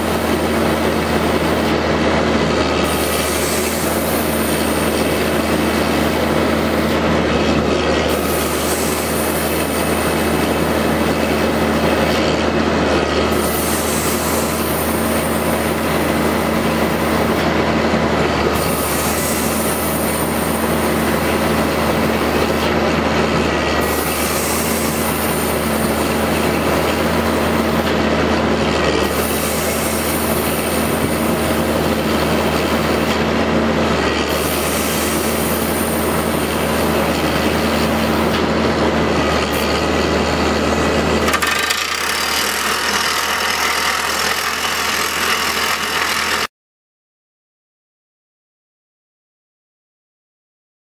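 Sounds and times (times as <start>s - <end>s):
drill rig power pack running: 0.0s - 46.5s
hydraulic rock drill rattling: 0.0s - 46.5s.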